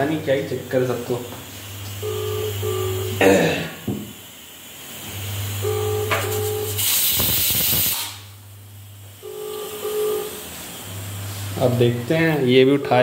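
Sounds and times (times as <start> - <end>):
ringback tone beeps: 2.0 - 3.2, 5.6 - 6.8, 9.2 - 10.4
burst of hiss: 6.4 - 8.3.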